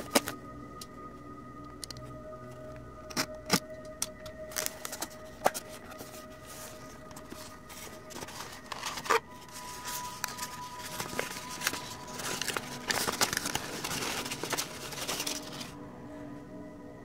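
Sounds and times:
packing paper rustling and crackling: 0.0s - 0.4s, 4.5s - 15.8s
cardboard scrape: 4.6s - 15.7s.

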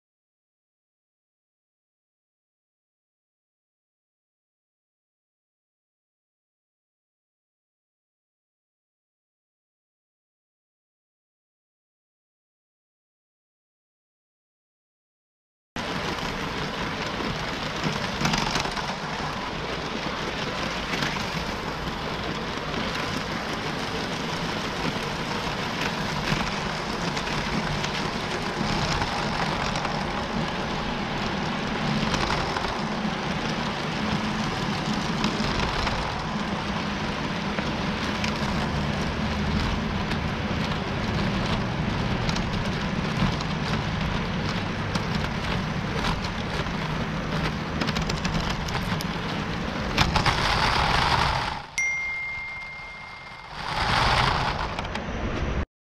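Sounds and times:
toy train wheels rattling: 50.0s - 54.8s.

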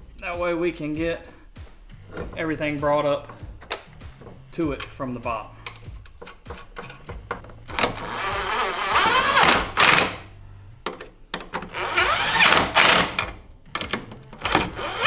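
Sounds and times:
light handling clicks: 5.6s - 7.7s
electric impact wrench running: 7.7s - 10.2s, 11.7s - 13.3s, 14.4s - 15.0s.

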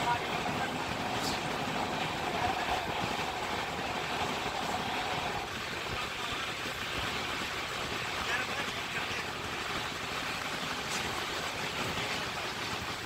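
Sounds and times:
wind rush: 0.0s - 8.3s
thin steady whine: 0.0s - 9.3s
train wheels rumbling on rails: 0.0s - 13.0s.

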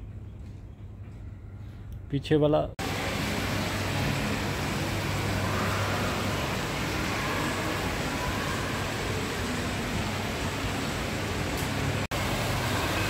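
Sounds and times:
steady rushing noise: 2.8s - 13.0s.

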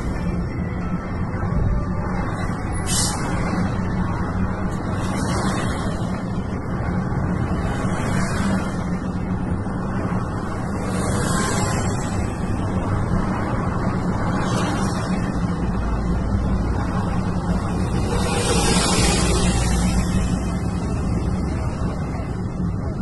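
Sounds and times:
car engine and road drone: 0.0s - 23.0s.

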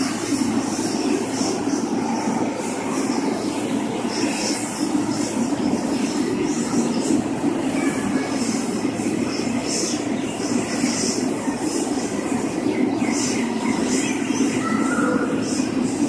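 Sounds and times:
jet engine hiss: 0.0s - 16.0s
jet engines rumbling: 0.0s - 16.0s.

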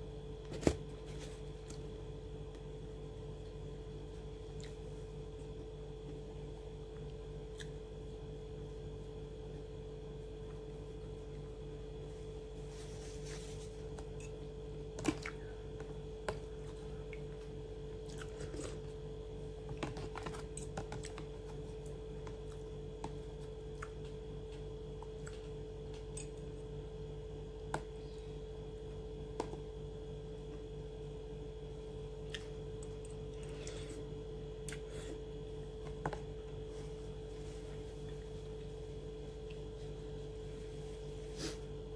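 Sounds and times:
steady electrical hum: 0.0s - 41.9s
chewing french fries: 16.4s - 19.1s.

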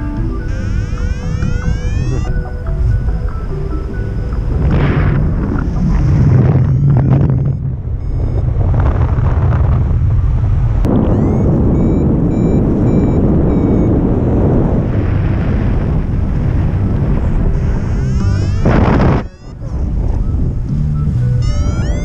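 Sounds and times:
wind buffeting microphone: 0.0s - 22.0s
faint high beeps: 6.6s - 8.5s, 10.9s - 14.4s.

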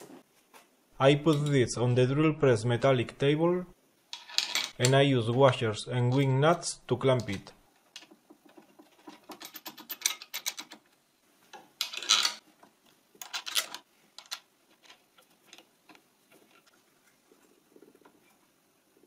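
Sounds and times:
metal washers and nuts clinking: 4.1s - 4.9s, 8.8s - 10.9s, 11.8s - 12.4s, 13.2s - 15.6s.

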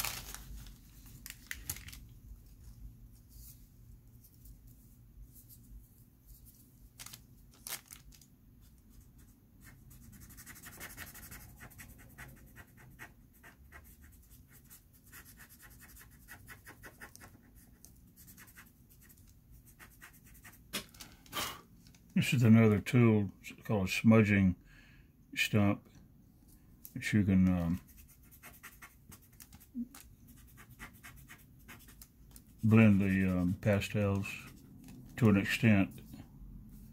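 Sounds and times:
faint dry scratching on paper: 8.9s - 20.7s, 27.5s - 36.9s.

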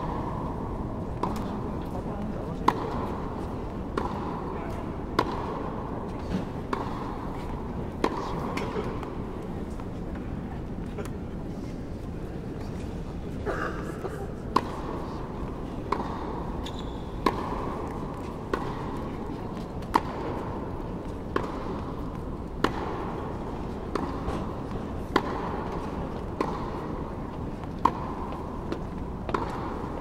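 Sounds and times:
tennis balls struck by racket: 0.0s - 10.3s, 14.5s - 30.0s
tennis balls bouncing: 0.0s - 10.9s, 14.5s - 30.0s.

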